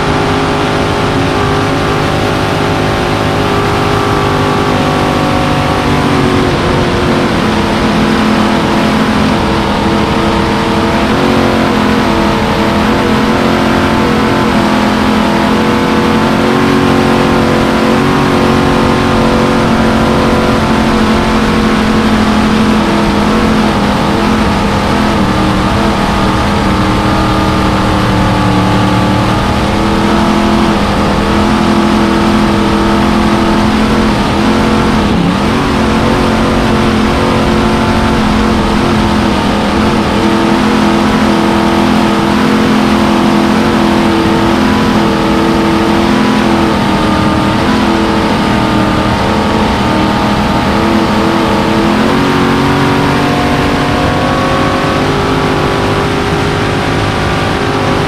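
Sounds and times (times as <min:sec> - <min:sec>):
boat engine running hard: 0:00.0 - 0:58.0
wind: 0:00.0 - 0:58.0.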